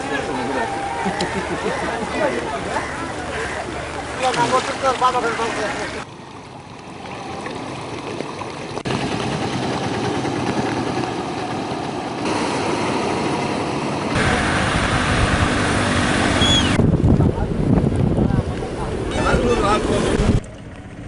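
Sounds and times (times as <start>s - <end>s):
floodwater rushing: 0.0s - 21.0s
wind on microphone: 14.1s - 20.5s.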